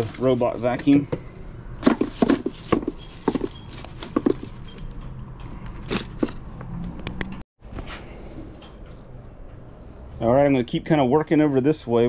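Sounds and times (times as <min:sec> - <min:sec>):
tools knocking and clattering: 0:01.8 - 0:06.5.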